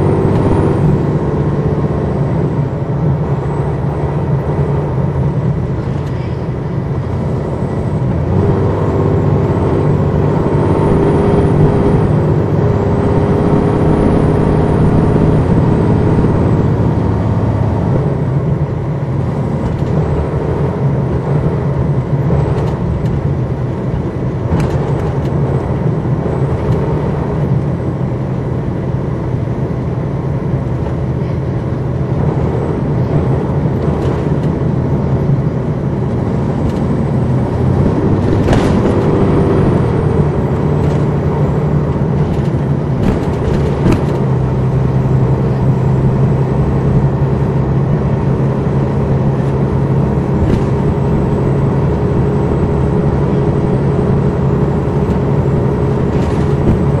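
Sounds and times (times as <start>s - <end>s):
bus diesel engine drone: 0.0s - 57.0s
knocks and rattles: 37.6s - 39.8s, 42.0s - 44.4s.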